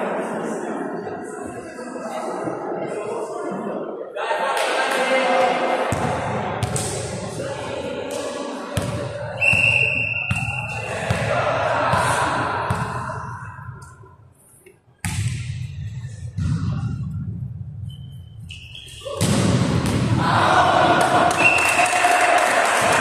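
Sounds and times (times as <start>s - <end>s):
players' voices: 0.0s - 14.1s, 18.6s - 23.0s
referee's whistle: 9.4s - 10.9s, 17.9s - 19.2s, 21.4s - 21.8s.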